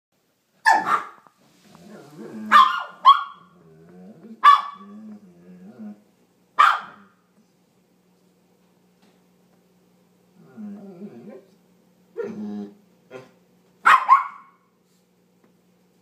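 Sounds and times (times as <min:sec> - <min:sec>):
sharp high-pitched dog barks: 0:00.6 - 0:01.2, 0:02.5 - 0:03.4, 0:04.4 - 0:04.8, 0:06.6 - 0:07.1, 0:13.8 - 0:14.6
low wavering dog grumble: 0:01.6 - 0:02.6, 0:03.4 - 0:06.1, 0:10.4 - 0:11.5, 0:12.2 - 0:13.4.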